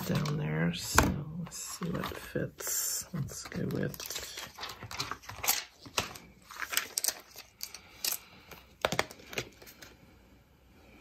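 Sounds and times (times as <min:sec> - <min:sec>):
plastic clicks taps and crinkles: 0:03.3 - 0:09.9.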